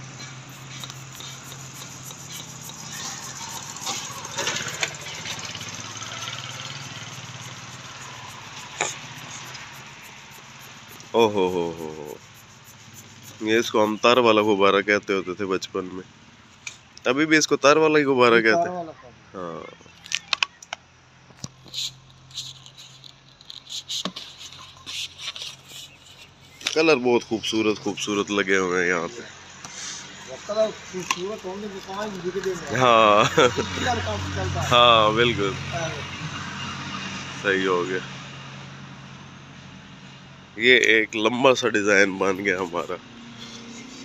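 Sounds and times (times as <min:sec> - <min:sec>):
low engine-like hum: 0:00.0 - 0:17.0
balloon squeak: 0:00.3 - 0:14.6, 0:21.6 - 0:26.7.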